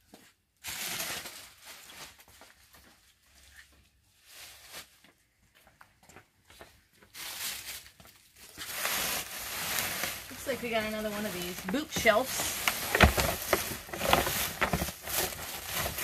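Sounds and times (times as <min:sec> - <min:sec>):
plastic packaging rustling: 0:00.6 - 0:05.1, 0:07.1 - 0:16.0
handling noises: 0:08.4 - 0:16.0
footsteps: 0:10.4 - 0:16.0.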